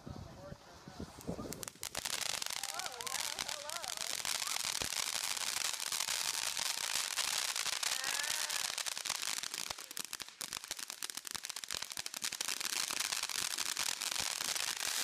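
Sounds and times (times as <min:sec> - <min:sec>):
fireworks hissing and crackling: 0:00.6 - 0:15.0.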